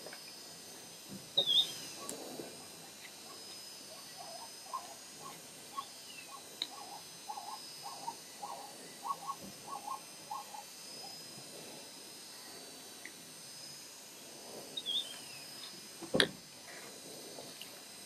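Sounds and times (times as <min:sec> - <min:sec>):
insect chorus: 0:00.0 - 0:18.0
short animal calls: 0:04.0 - 0:11.2.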